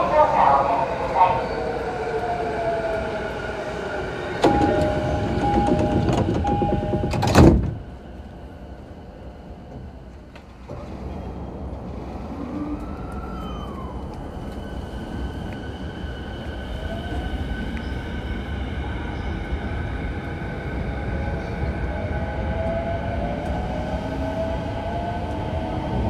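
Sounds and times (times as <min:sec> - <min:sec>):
train running noise: 0:00.0 - 0:26.0
two-tone door chime: 0:04.4 - 0:07.4
sliding doors shutting with thump: 0:04.4 - 0:07.9, 0:09.7 - 0:11.2.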